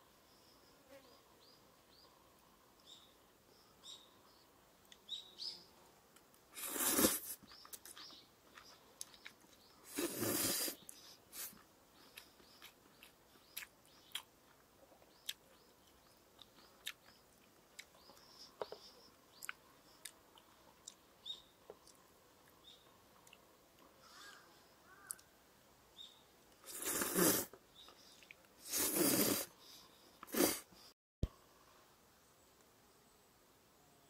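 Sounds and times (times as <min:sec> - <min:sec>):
slurping noodles: 0:06.6 - 0:07.4, 0:09.9 - 0:10.8, 0:26.6 - 0:27.6, 0:28.6 - 0:29.5, 0:30.3 - 0:30.7
faint bird chirps: 0:15.0 - 0:20.1, 0:24.0 - 0:26.9.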